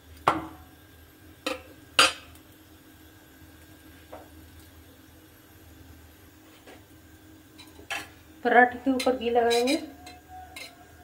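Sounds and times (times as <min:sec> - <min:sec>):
metal spatula clinking on pan: 0:09.0 - 0:10.8.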